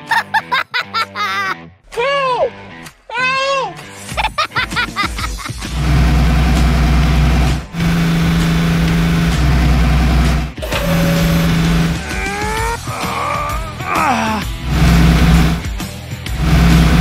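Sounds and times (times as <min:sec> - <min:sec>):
toy vehicle engine sound effect: 0:05.7 - 0:12.6, 0:14.6 - 0:15.6.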